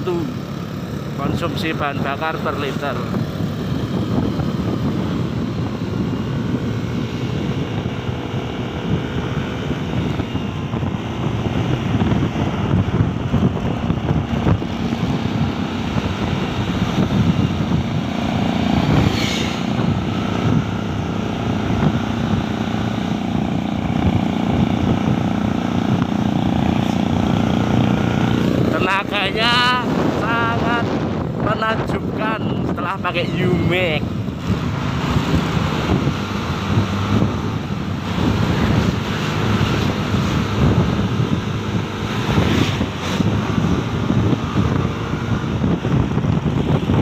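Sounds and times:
scooter engine running under load: 0.0s - 30.5s.

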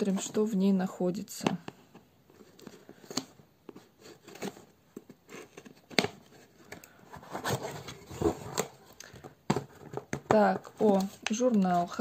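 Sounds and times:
cardboard box rustling: 3.7s - 12.0s.

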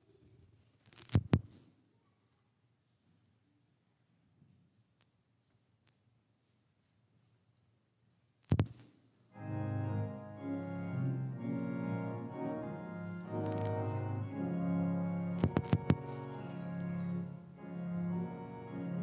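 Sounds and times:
organ playing held chords: 9.4s - 19.0s.

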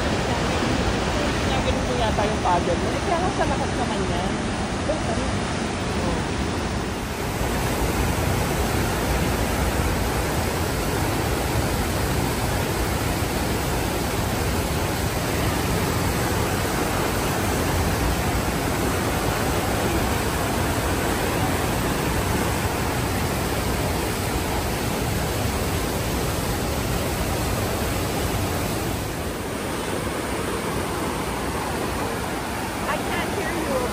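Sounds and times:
water rushing over rapids: 0.0s - 33.9s.

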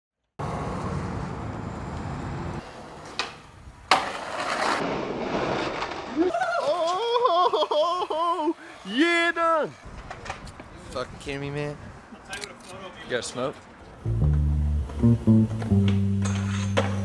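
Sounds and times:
skateboard wheels rolling on concrete: 0.4s - 7.7s, 8.3s - 17.0s
skateboard smacking the ground: 3.0s - 6.1s.

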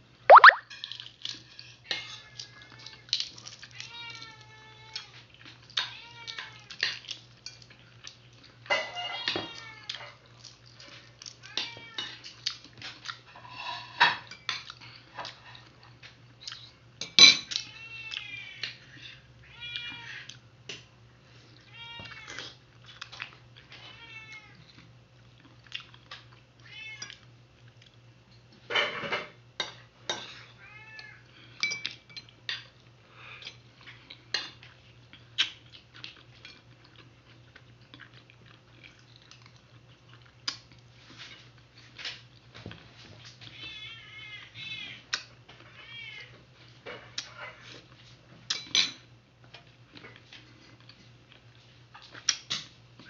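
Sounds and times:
short high animal calls: 0.3s - 0.6s.

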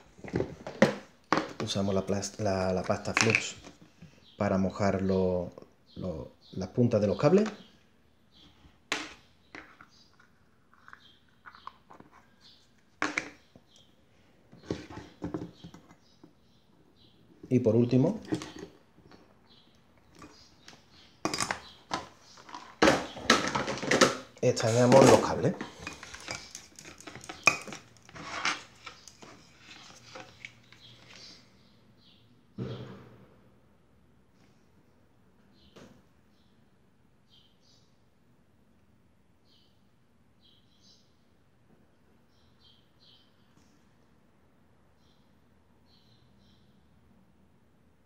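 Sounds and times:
small clicks and rustles: 25.7s - 31.4s.

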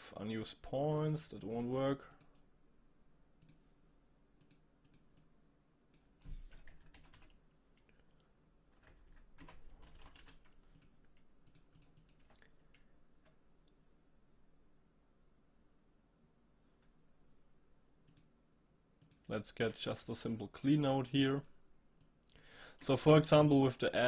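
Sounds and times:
keyboard typing: 6.3s - 7.4s, 8.8s - 13.4s.

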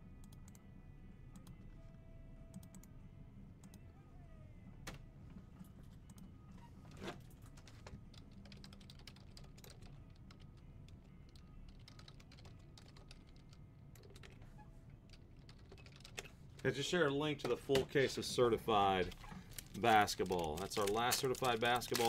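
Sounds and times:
faint low hum: 0.0s - 22.0s
typing on computer keyboard: 7.5s - 10.5s, 11.2s - 14.4s, 15.1s - 16.3s.

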